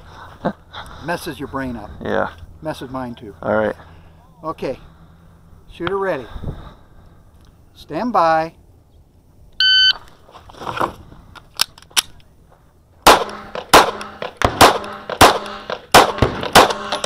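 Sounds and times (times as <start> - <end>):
shot timer beep: 9.6 - 10.0
pistol shots: 13.0 - 17.0.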